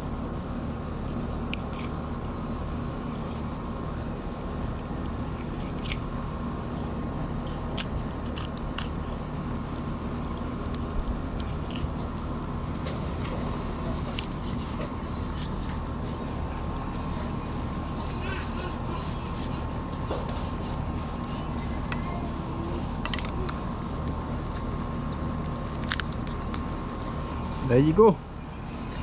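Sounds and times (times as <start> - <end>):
low mechanical hum: 0.0 - 29.0
small crunching clicks: 0.8 - 3.7, 4.6 - 12.2, 22.8 - 27.6.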